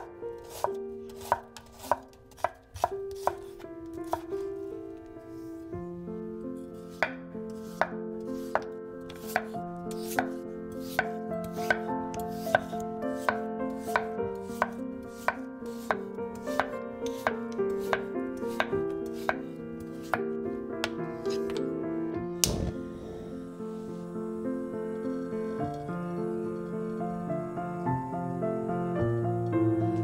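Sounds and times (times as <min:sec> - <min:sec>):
knife chopping on wooden board: 0:00.0 - 0:04.3, 0:06.9 - 0:19.4.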